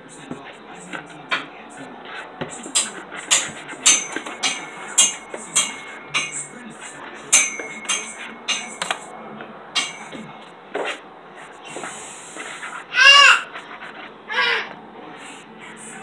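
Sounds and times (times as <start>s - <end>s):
kitchenware clinking and clattering: 2.4s - 11.0s.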